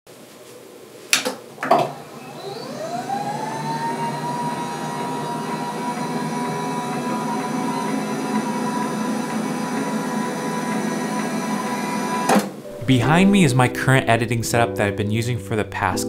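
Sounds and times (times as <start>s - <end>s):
desk motors whining: 1.6s - 12.7s.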